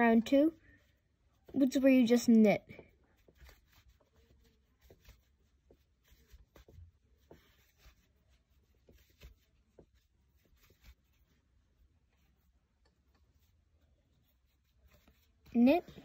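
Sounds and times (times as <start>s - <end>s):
yarn rustling: 0.0s - 16.0s
small clicks of knitting: 12.8s - 13.6s.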